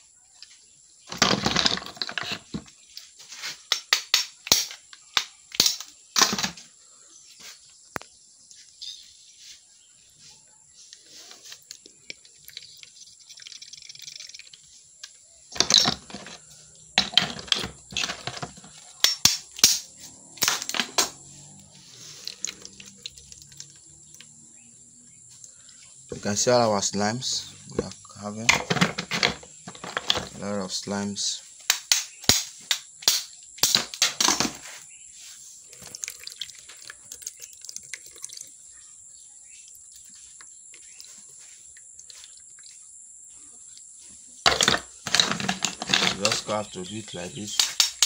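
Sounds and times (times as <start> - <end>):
snail shells clicking: 11.5 - 16.4, 20.4 - 24.3, 35.7 - 38.5, 47.4 - 48.0.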